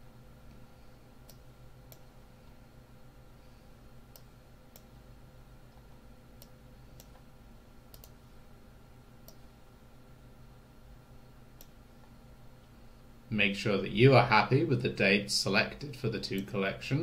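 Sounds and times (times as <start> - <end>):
faint electrical hum: 0.0 - 17.0
computer mouse clicking: 1.2 - 2.1, 6.4 - 7.2, 7.9 - 8.2, 11.6 - 11.8.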